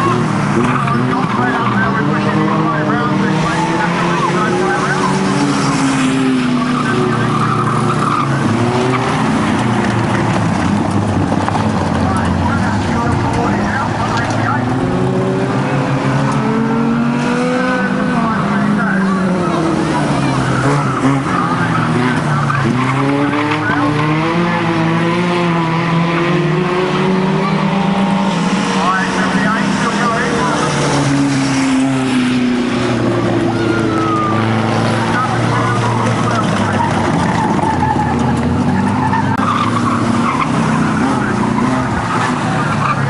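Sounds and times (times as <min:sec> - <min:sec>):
tyres squealing on tarmac: 0:00.0 - 0:09.9, 0:17.8 - 0:24.2, 0:33.2 - 0:43.0
racing car engines running hard: 0:00.0 - 0:43.0
tyres skidding: 0:00.0 - 0:43.0.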